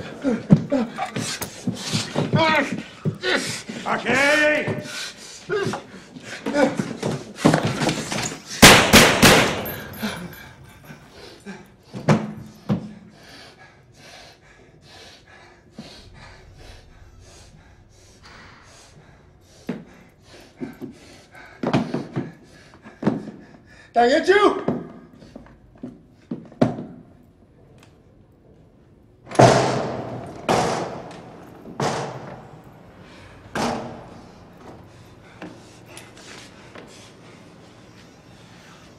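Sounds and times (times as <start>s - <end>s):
loud sharp bangs: 8.6s - 9.8s
heavy thuds: 15.7s - 21.1s.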